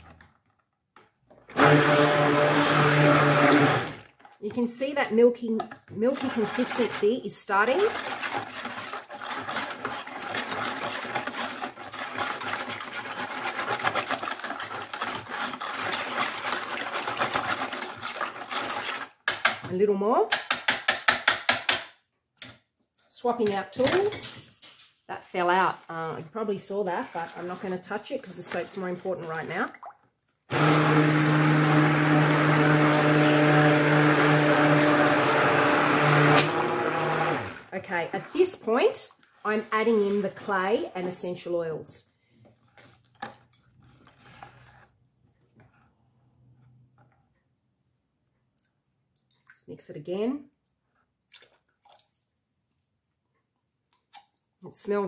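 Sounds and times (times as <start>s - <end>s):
stick blender running: 1.5s - 4.1s, 30.5s - 37.7s.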